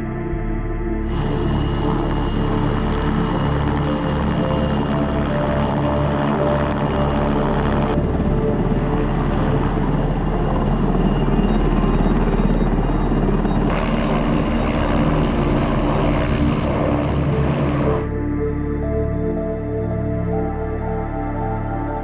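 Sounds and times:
helicopter rotor chopping: 1.1 - 18.1.

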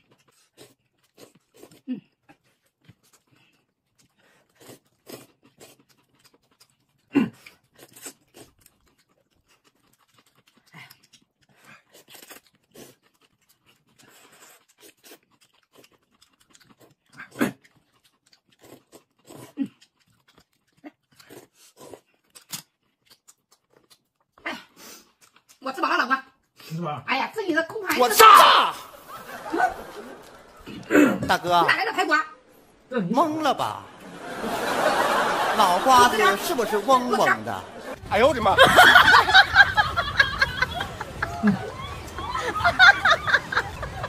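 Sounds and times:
noodles being slurped: 0.0 - 25.4
chewing and mouth smacks: 0.0 - 25.6.

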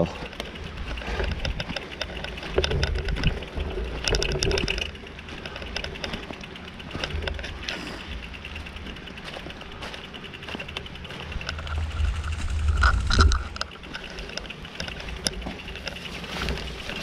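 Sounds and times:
bicycle freewheel ticking: 0.0 - 17.0
low rumble: 10.9 - 16.9.

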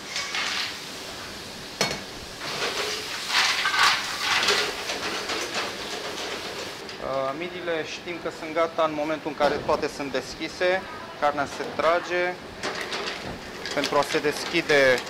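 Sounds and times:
mussels sizzling in a pan: 0.0 - 6.8.

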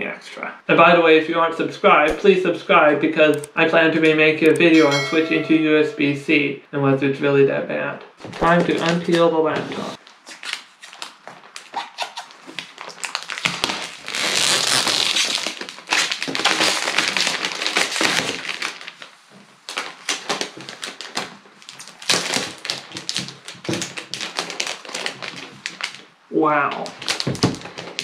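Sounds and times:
plastic wrap rustling: 9.9 - 26.1, 26.9 - 28.0.

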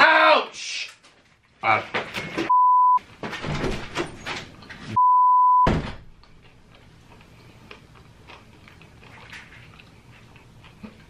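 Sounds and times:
censor bleep: 2.5 - 3.0, 5.0 - 5.7
chewing clicks and smacks: 6.2 - 11.0.

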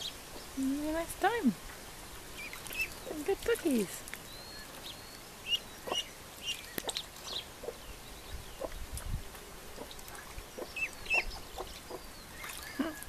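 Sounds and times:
ducklings peeping: 2.3 - 9.1, 9.7 - 13.0.

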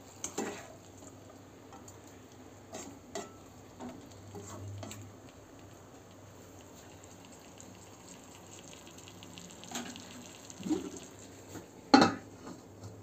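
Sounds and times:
food sizzling in a wok: 6.3 - 11.6.

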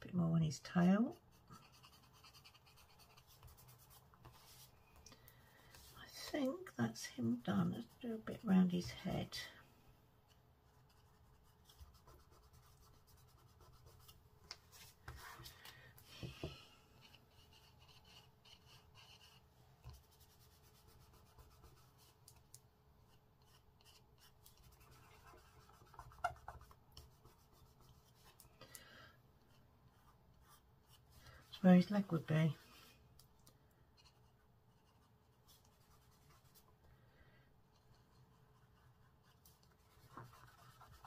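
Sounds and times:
pencil scratching on card: 1.1 - 4.7, 10.7 - 15.5, 17.0 - 22.4, 23.0 - 28.4, 37.7 - 41.0.

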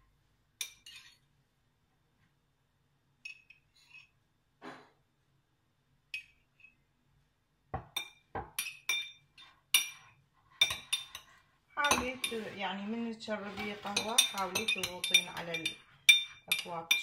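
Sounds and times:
metal spoon clinking against glasses: 7.9 - 12.4, 13.9 - 17.0.

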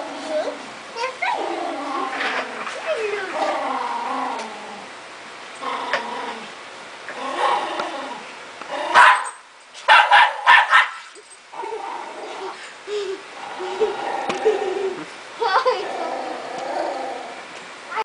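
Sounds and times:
dog growling and barking: 0.0 - 17.5.

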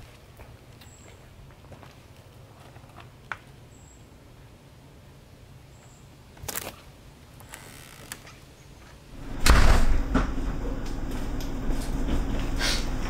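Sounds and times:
low room hum: 9.1 - 13.0
heavy door thud: 9.2 - 13.0.

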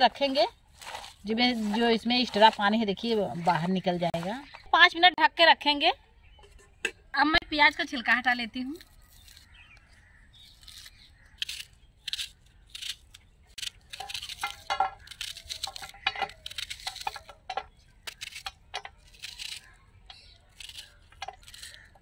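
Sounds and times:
knife cutting onion: 10.6 - 17.3, 18.0 - 22.0.

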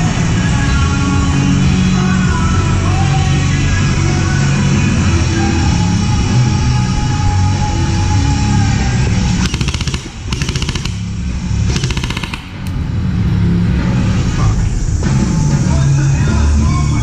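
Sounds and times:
loud rock music: 0.0 - 17.0
airsoft gun bursts: 9.4 - 12.8.

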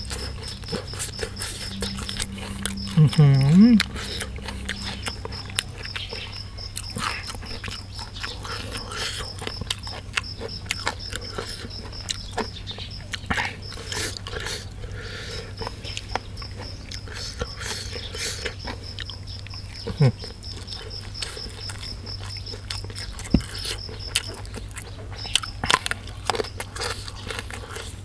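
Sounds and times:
chewing and lip-smacking: 0.0 - 28.0
crunchy clicks: 3.8 - 14.6.

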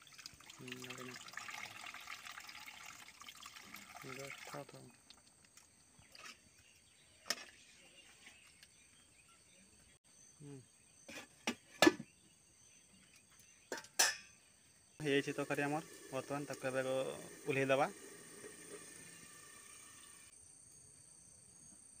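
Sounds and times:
metal lid clanking: 13.7 - 14.4.

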